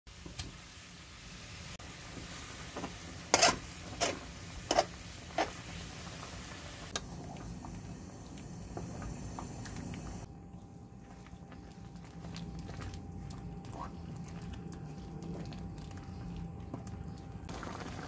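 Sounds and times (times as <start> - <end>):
water bubbling in a pan: 11.5 - 18.0.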